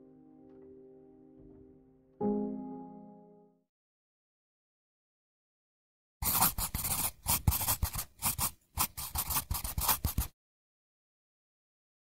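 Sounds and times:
pen scribbling on paper: 6.2s - 10.3s.

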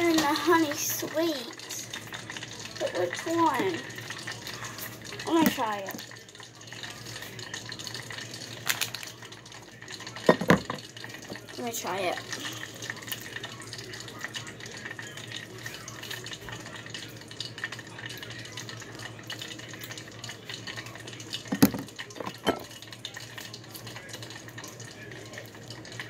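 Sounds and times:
kitchen background hiss: 0.0s - 17.1s.

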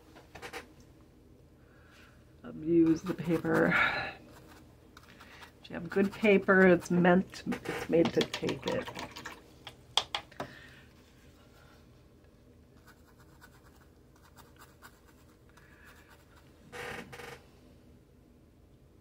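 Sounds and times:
paintbrush scrubbing on paper: 2.8s - 6.9s, 12.8s - 16.5s.

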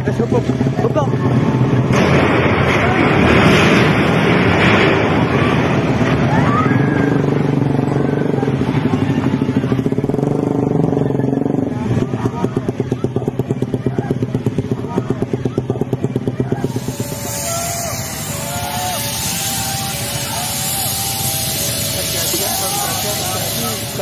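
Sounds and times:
motorcycle engines running: 0.0s - 24.0s
loud rushing noise: 0.5s - 10.2s, 16.4s - 24.0s.

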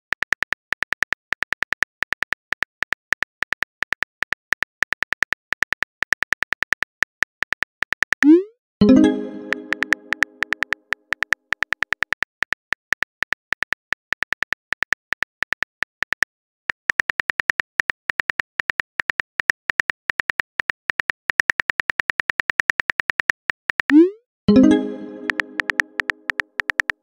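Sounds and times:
message chime ringing: 8.3s - 10.6s, 24.0s - 26.3s
phone keyboard typing clicks: 9.0s - 10.8s, 24.6s - 27.0s.

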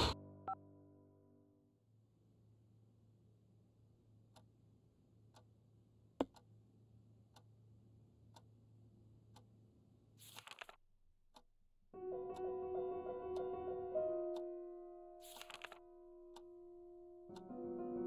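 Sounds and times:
faint clock ticking: 5.2s - 9.7s, 12.3s - 17.9s.

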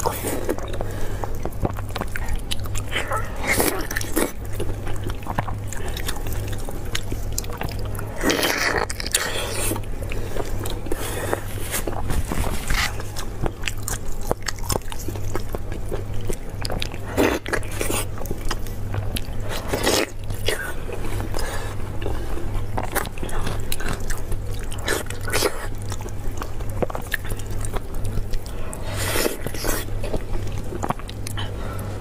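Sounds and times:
wet chewing and biting: 0.0s - 31.9s
steady low hum: 0.0s - 32.0s.

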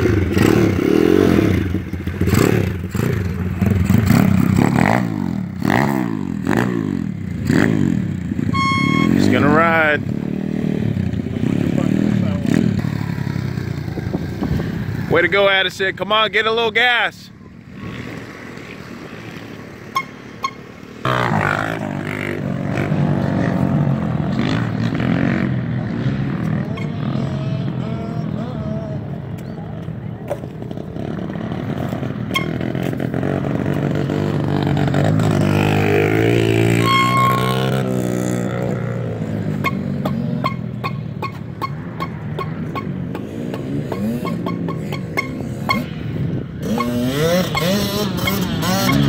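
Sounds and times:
motorbike engine revving: 0.0s - 15.6s, 17.5s - 49.0s.

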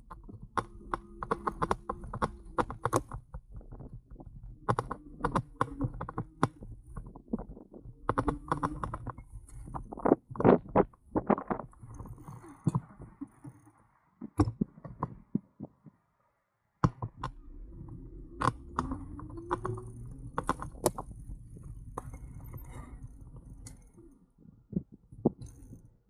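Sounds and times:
wind and road rumble: 0.0s - 16.1s, 16.8s - 26.0s
bike rattling over bumps: 18.1s - 24.0s.

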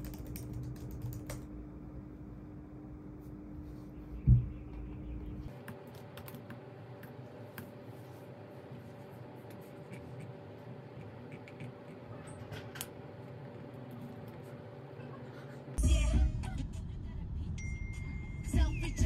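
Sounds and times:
laptop keyboard typing: 0.0s - 1.5s.

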